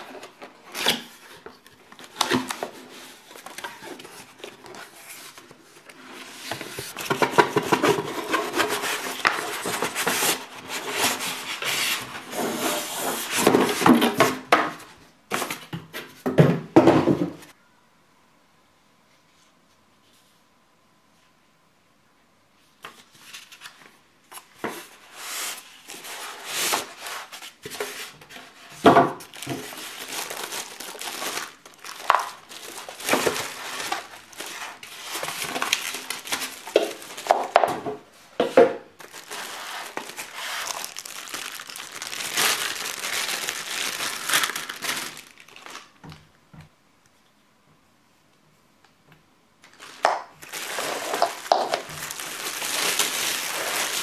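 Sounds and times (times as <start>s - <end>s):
plastic wrapping crinkling: 0.0s - 14.4s, 22.9s - 38.1s, 38.8s - 46.2s, 49.6s - 54.0s.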